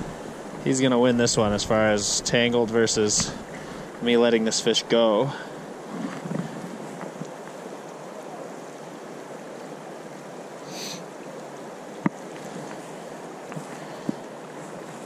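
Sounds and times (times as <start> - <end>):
river water flowing over rocks: 0.0 - 15.0
brief hiss: 10.7 - 11.0.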